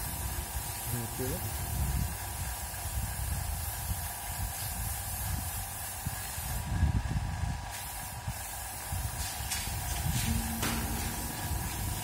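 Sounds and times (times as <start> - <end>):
paint spray gun hissing: 0.0 - 12.0
steady hum: 0.0 - 12.0
uneven low rumble: 9.8 - 12.0.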